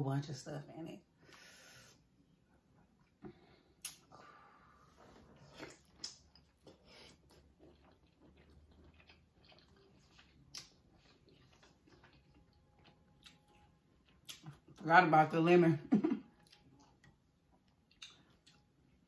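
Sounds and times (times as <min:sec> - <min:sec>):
chewing and wet mouth sounds: 0:03.8 - 0:14.8, 0:16.3 - 0:19.0.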